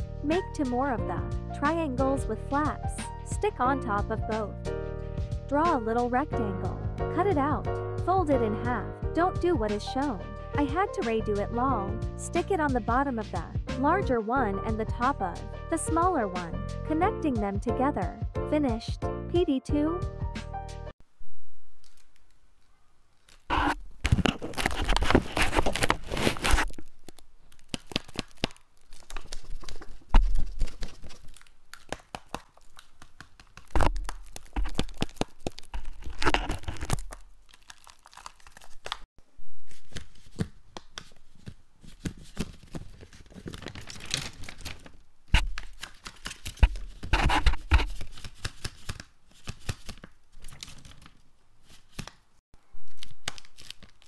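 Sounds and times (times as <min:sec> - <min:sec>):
paper rustling and crinkling: 0:21.8 - 0:39.1, 0:39.7 - 0:52.2, 0:52.8 - 0:54.0
sharp paper clicks: 0:21.8 - 0:39.1, 0:39.8 - 0:52.2, 0:52.9 - 0:54.0.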